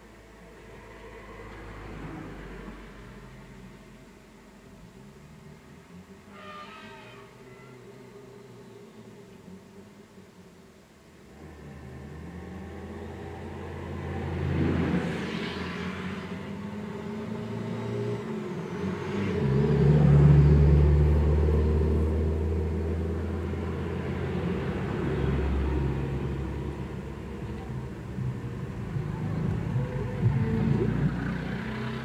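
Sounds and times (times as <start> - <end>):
cars passing: 11.2 - 32.0
bus diesel engine passing: 11.3 - 32.0.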